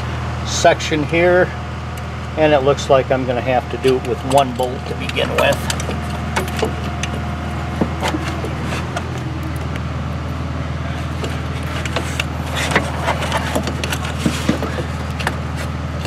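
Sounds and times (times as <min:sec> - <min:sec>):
steady low hum: 0:00.0 - 0:16.0
metal parts clicking: 0:03.8 - 0:07.2.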